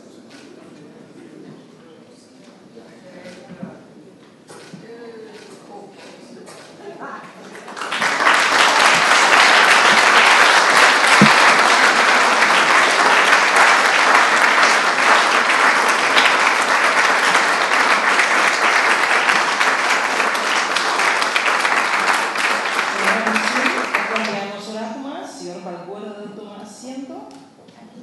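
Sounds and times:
audience applauding: 0:07.4 - 0:24.5.

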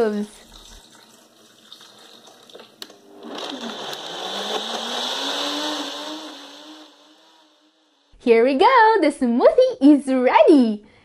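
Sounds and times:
blender motor running: 0:02.8 - 0:08.0.

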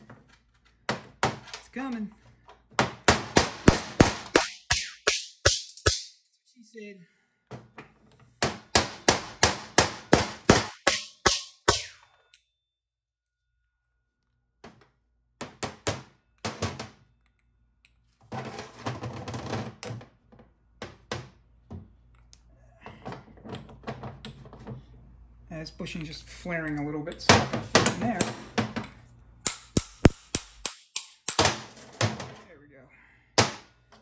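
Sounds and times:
hammer striking metal driver: 0:02.8 - 0:06.1, 0:08.4 - 0:12.1, 0:27.3 - 0:31.7
metal parts clattering on workbench: 0:31.4 - 0:32.5.

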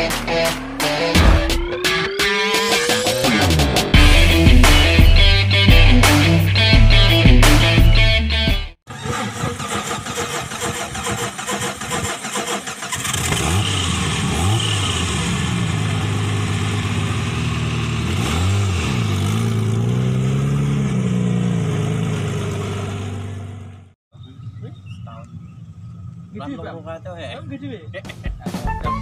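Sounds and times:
engine cranking and revving: 0:00.0 - 0:05.3, 0:08.9 - 0:23.9.

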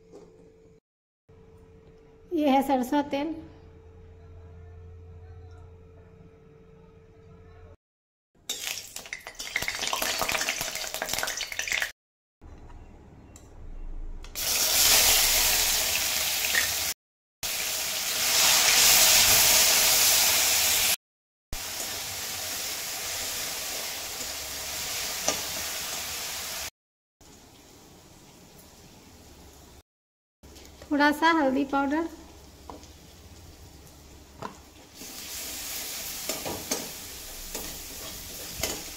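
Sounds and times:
paste sizzling in hot oil: 0:34.8 - 0:38.9
spatula clinking and scraping: 0:36.2 - 0:38.9.

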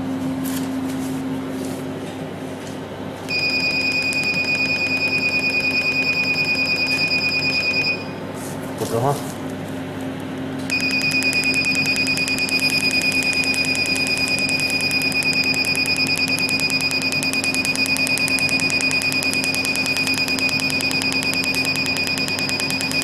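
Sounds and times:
machine low hum: 0:00.0 - 0:23.0
steady high-pitched beep: 0:03.3 - 0:08.2, 0:10.7 - 0:23.0
rapid machine clicks: 0:10.7 - 0:23.0.

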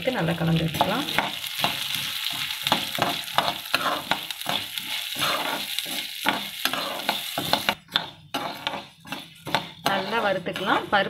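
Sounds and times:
lentils sizzling in oil: 0:00.0 - 0:11.0
metal spoon scraping a pan: 0:00.7 - 0:11.0.

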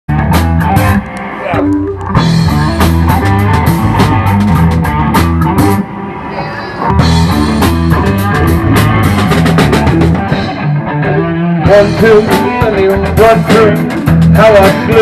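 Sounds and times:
funk-rock band playing: 0:00.1 - 0:15.0.

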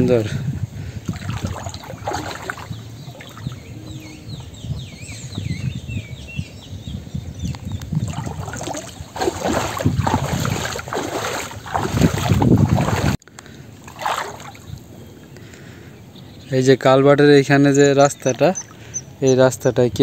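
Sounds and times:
wind rumbling on microphone: 0:00.0 - 0:13.2
small bird chirping: 0:01.7 - 0:09.2.

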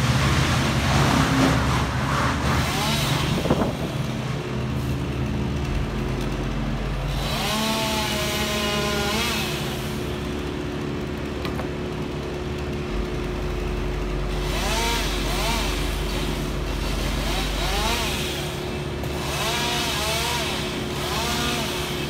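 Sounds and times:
chainsaw revving: 0:00.0 - 0:22.0
low engine hum: 0:00.0 - 0:22.0.

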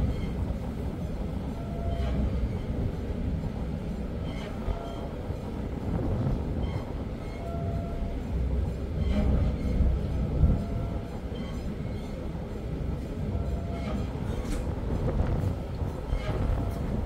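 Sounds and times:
ship engine rumble: 0:00.0 - 0:17.0
wind buffeting: 0:00.0 - 0:17.0
faint short squeaks: 0:10.7 - 0:12.2.

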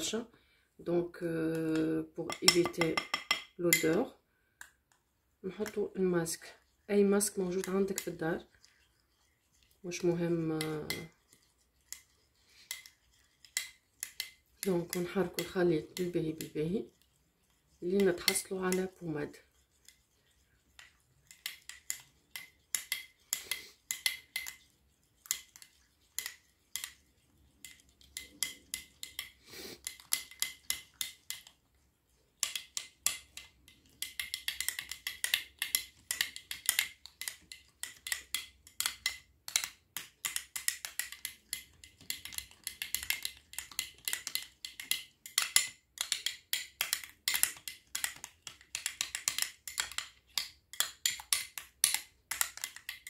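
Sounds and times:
spoon scraping ceramic bowl: 0:01.7 - 0:04.1, 0:05.5 - 0:31.5.

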